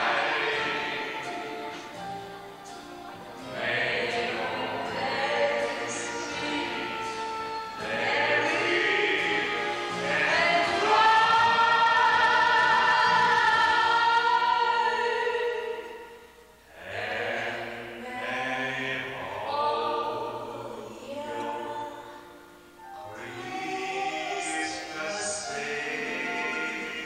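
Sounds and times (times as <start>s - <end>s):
musical accompaniment: 0.0s - 27.0s
woman singing into microphone: 3.6s - 9.2s, 10.0s - 15.9s, 19.2s - 22.2s.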